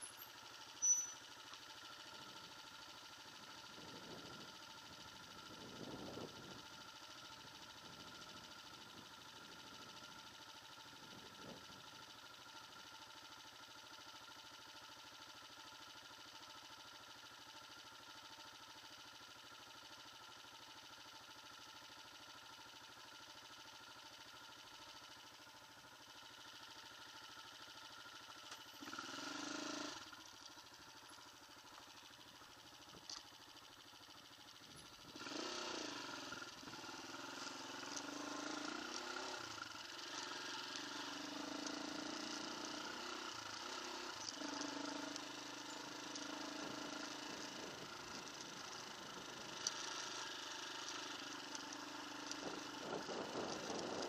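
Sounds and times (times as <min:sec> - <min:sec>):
dirt bike engine revving: 0:35.1 - 0:51.1.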